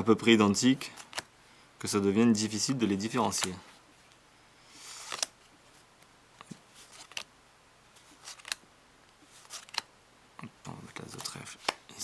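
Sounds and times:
playing cards clicking onto pile: 0:03.2 - 0:03.6, 0:05.0 - 0:05.3, 0:08.2 - 0:08.6, 0:09.4 - 0:09.9, 0:11.1 - 0:11.9.

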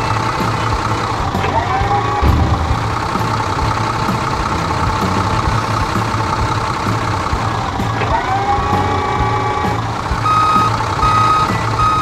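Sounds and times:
backhoe engine pulsing: 0:00.0 - 0:12.0
steady whine: 0:01.9 - 0:08.0.

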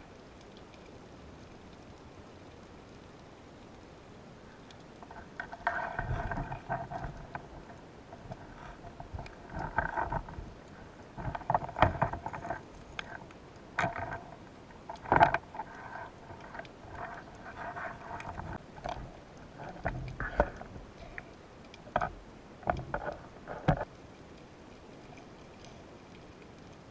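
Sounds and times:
muffled underwater rubbing and scraping: 0:05.0 - 0:21.3, 0:21.9 - 0:23.9.

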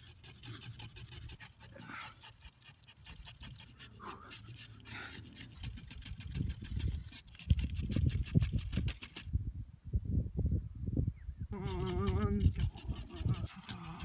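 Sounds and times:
wood rubbing on wood: 0:00.0 - 0:09.3, 0:11.6 - 0:14.0
man panting: 0:01.6 - 0:05.8.

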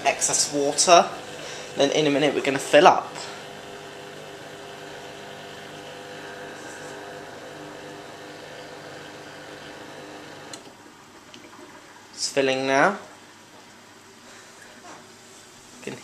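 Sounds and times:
dishwasher drain pump humming: 0:00.0 - 0:10.7
pump switching off click: 0:10.4 - 0:10.7.

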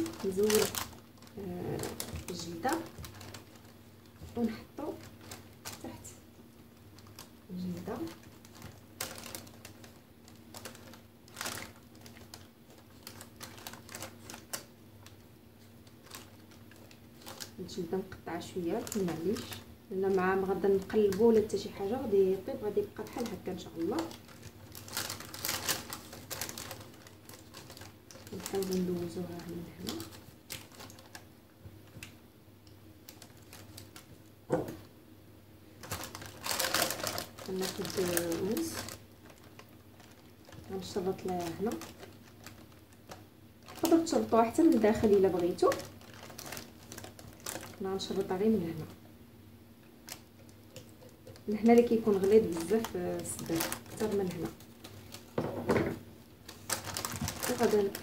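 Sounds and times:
paper rustling: 0:00.0 - 0:06.0, 0:07.0 - 0:17.6, 0:23.1 - 0:31.2, 0:35.8 - 0:48.9, 0:56.5 - 0:58.0
faint steady hum: 0:00.0 - 0:58.0.

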